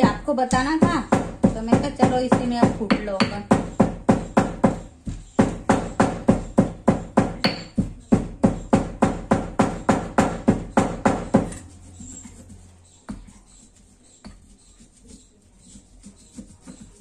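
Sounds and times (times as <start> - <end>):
stone pestle pounding in mortar: 0.0 - 12.3.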